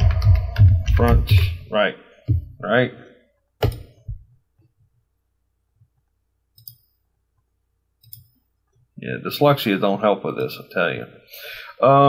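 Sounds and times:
computer mouse clicks: 6.5 - 7.0, 8.0 - 8.8.

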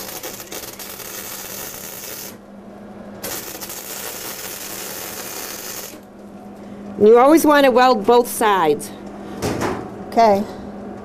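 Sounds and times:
welding arc crackling hiss: 0.0 - 2.4, 3.2 - 6.1
steady low hum: 0.0 - 11.0.

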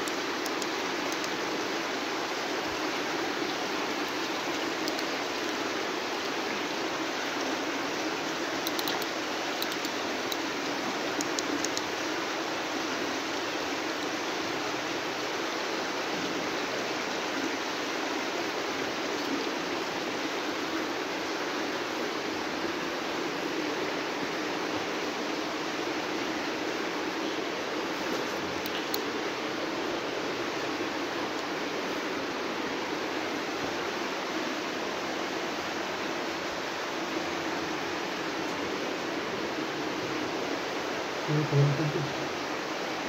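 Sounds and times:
faint clicks: 0.0 - 1.4, 4.0 - 5.6, 8.6 - 10.5, 11.2 - 11.9, 28.1 - 29.1
rushing running water: 0.0 - 43.0.

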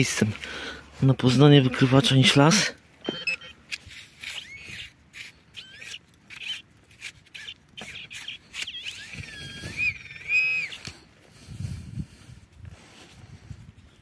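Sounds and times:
knife scraping into soil: 3.3 - 11.0
rising and falling chirps: 8.7 - 10.8.

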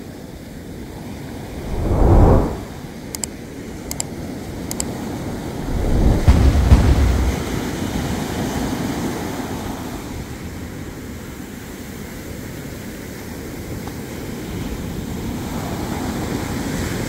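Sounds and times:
wind buffeting the microphone: 1.5 - 2.8, 5.6 - 7.9.

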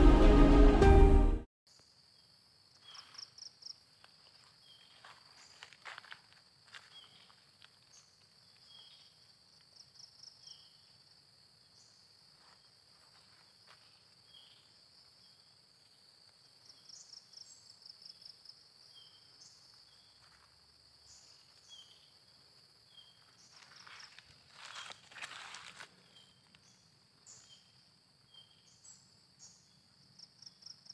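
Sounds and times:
insect chorus drone: 1.7 - 30.9
rustling footsteps: 4.0 - 9.1, 12.4 - 14.2, 23.4 - 26.6.

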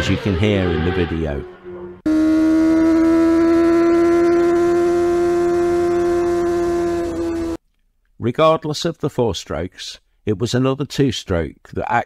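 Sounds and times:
motorcycle engine high revs wail: 0.0 - 7.6.

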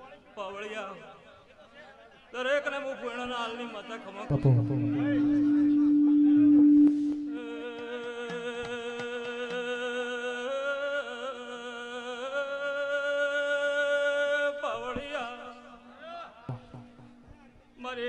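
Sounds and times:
man's voice: 4.3 - 6.5
keyboard holding chord: 4.3 - 7.8.

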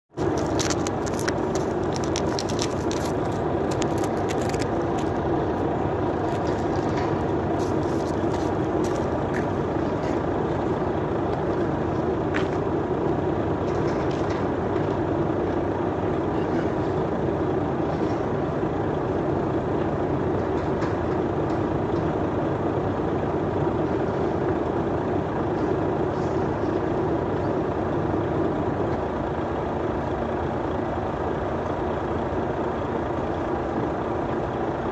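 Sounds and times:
sharp clicks and knocks: 0.1 - 5.6
heavy diesel engine running: 0.1 - 34.9.

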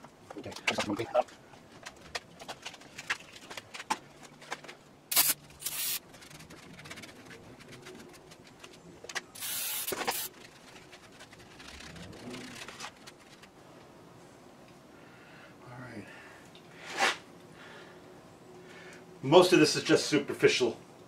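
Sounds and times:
handling clicks and rubbing: 0.0 - 13.6
hissing spray bursts: 5.1 - 6.0, 9.4 - 10.3.

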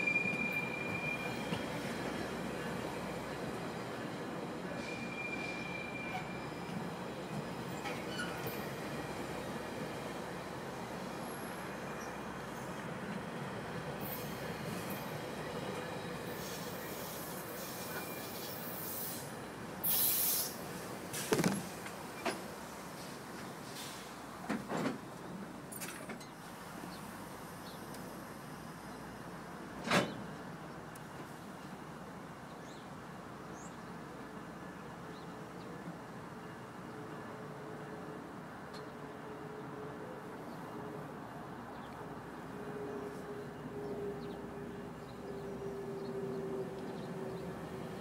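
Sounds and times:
short hiss: 19.8 - 20.6.

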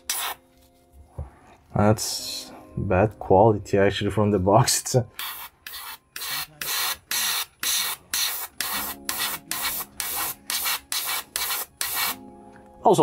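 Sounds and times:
airbrush spraying spurts: 0.0 - 0.4, 5.2 - 12.2.

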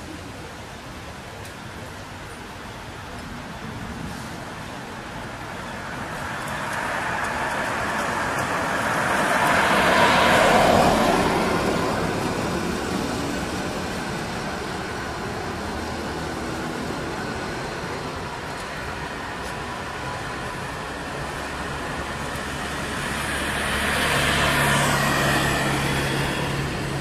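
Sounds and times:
vehicle passing by: 6.5 - 14.4.

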